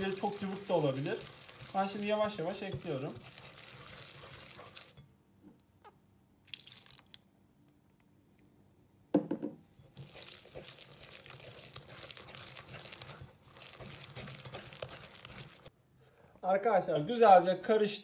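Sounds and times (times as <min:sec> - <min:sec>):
milk splashing: 0:00.0 - 0:05.0, 0:06.4 - 0:07.3, 0:09.9 - 0:15.7
whisk stirring batter: 0:00.0 - 0:05.0, 0:09.7 - 0:15.7.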